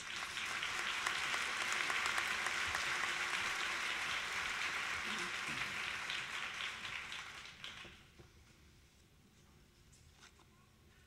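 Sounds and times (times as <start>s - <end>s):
audience applauding: 0.0s - 8.1s.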